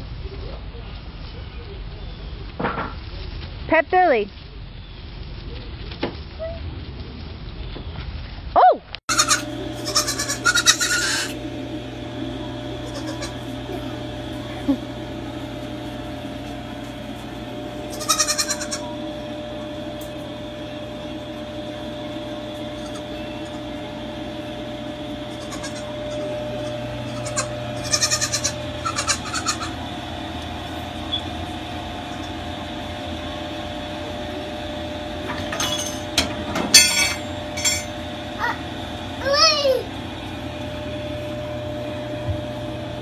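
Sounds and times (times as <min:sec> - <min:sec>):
baby goat bleating: 0:09.1 - 0:11.4, 0:12.9 - 0:13.4, 0:17.9 - 0:18.9, 0:25.3 - 0:29.7
steady hum: 0:09.1 - 0:43.0.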